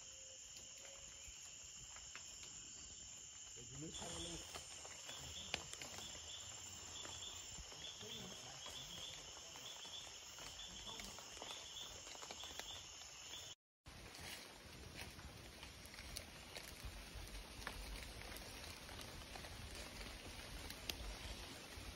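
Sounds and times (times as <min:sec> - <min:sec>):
insect chirping: 0:00.0 - 0:13.6, 0:15.0 - 0:21.9.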